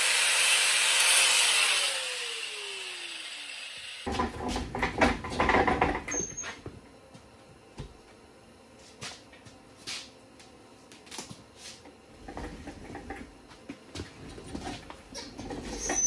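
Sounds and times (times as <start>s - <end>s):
footsteps: 8.8s - 11.9s.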